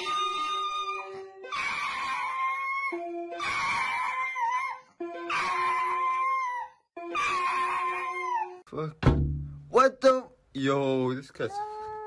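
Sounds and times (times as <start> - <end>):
dog howling: 0.0 - 8.6.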